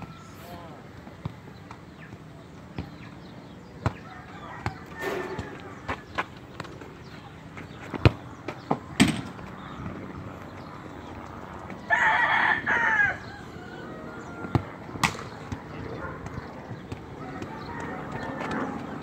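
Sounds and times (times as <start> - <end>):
soccer ball kick thuds: 1.1 - 6.7, 7.6 - 9.9, 14.4 - 19.0
rooster crowing: 4.0 - 6.0, 11.8 - 14.7, 17.2 - 18.6.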